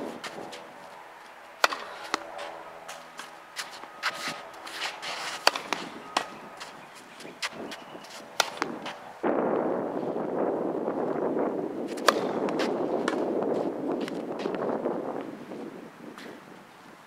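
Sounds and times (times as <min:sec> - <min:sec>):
tennis balls bouncing on hard court: 0:00.0 - 0:09.1, 0:11.9 - 0:14.6
tennis balls struck by racquets: 0:00.0 - 0:09.3, 0:11.8 - 0:14.6
steady rushing noise: 0:00.0 - 0:16.0.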